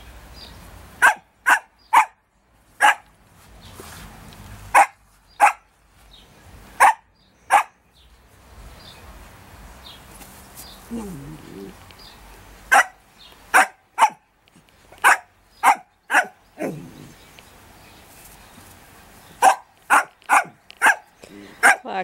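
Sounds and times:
small dog barking: 0:01.0 - 0:02.2, 0:02.8 - 0:03.1, 0:04.7 - 0:05.7, 0:06.8 - 0:07.8, 0:12.7 - 0:14.2, 0:15.0 - 0:16.9, 0:19.4 - 0:21.9.

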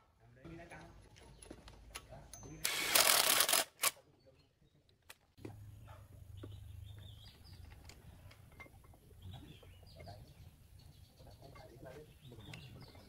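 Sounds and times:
faint bird chirps: 0:05.7 - 0:13.0.

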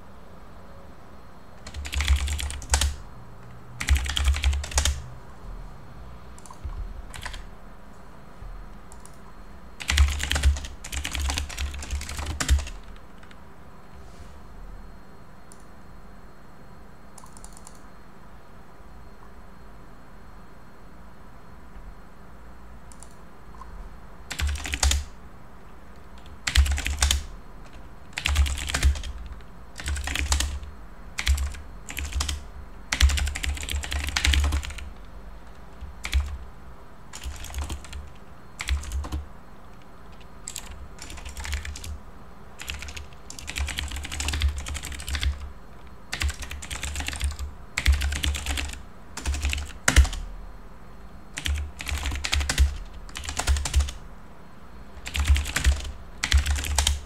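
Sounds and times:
computer keyboard typing: 0:01.6 - 0:05.1, 0:06.4 - 0:07.5, 0:08.9 - 0:13.4, 0:17.2 - 0:17.9, 0:22.9 - 0:23.7, 0:24.3 - 0:25.2, 0:25.9 - 0:36.5, 0:37.1 - 0:42.0, 0:42.6 - 0:50.3, 0:51.4 - 0:54.0, 0:55.0 - 0:57.0.

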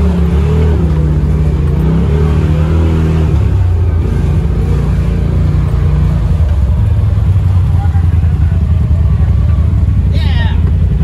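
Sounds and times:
off-road vehicle engine running hard: 0:00.0 - 0:11.0.

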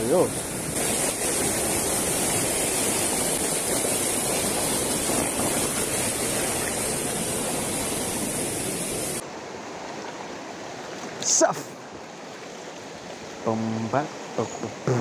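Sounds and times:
stream rushing over stones: 0:00.0 - 0:15.0.

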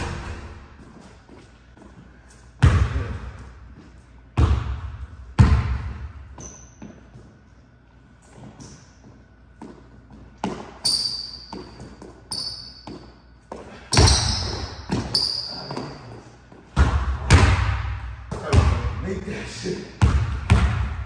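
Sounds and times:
sneaker squeaks on wood: 0:06.4 - 0:07.2, 0:10.4 - 0:13.2, 0:13.9 - 0:16.1
basketball bouncing on hardwood: 0:20.0 - 0:21.0.

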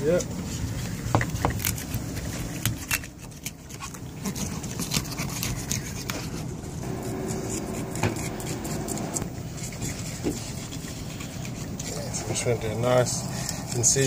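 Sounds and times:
faint steady hum: 0:00.0 - 0:14.0
steady low rumble: 0:05.6 - 0:11.8.

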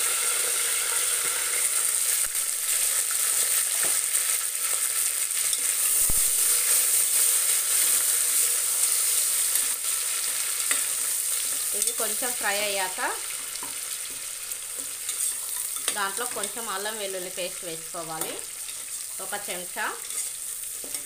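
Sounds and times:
vegetables sizzling in oil: 0:00.0 - 0:21.0
metal ladle stirring: 0:14.8 - 0:16.6, 0:20.0 - 0:21.0.

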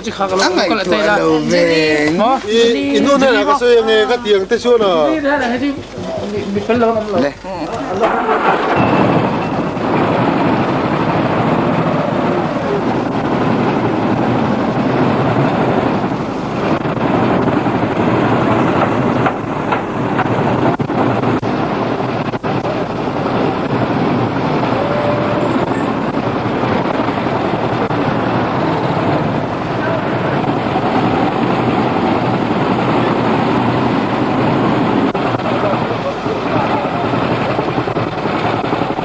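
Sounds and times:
wind on microphone: 0:07.8 - 0:39.0.

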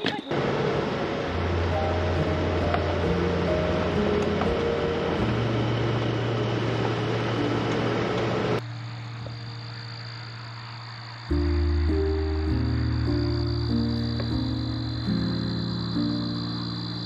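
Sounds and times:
vehicle and wind rush: 0:00.3 - 0:08.6
music of long held notes: 0:00.4 - 0:08.6, 0:11.3 - 0:17.0.

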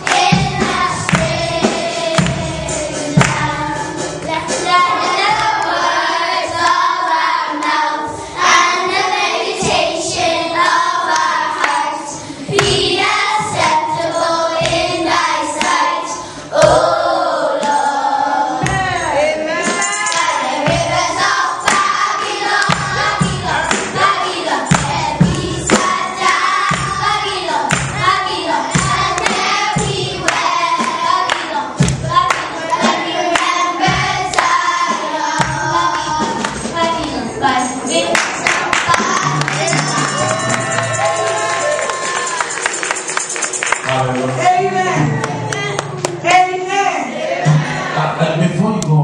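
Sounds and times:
sharp beats: 0:00.0 - 0:06.7, 0:16.6 - 0:46.4
children singing: 0:00.0 - 0:42.8, 0:47.0 - 0:48.4
musical accompaniment: 0:00.0 - 0:49.0.

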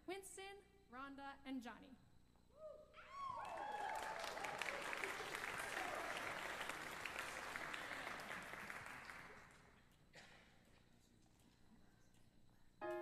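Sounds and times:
audience applauding: 0:03.2 - 0:09.8.

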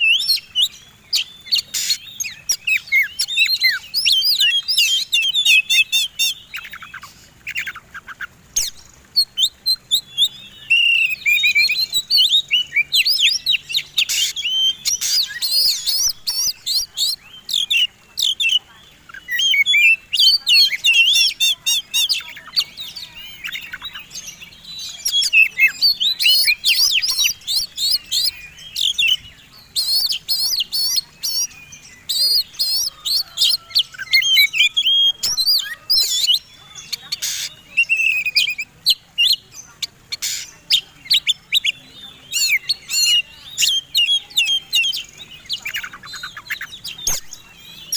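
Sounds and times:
bird singing: 0:00.0 - 0:47.9.

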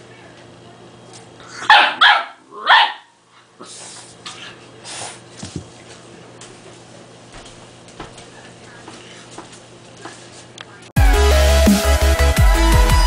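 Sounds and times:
puppy barking: 0:01.6 - 0:03.2.

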